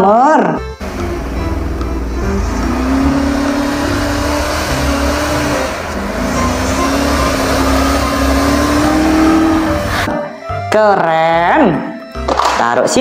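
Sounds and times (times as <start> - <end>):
engine revving hard: 0.8 - 10.1.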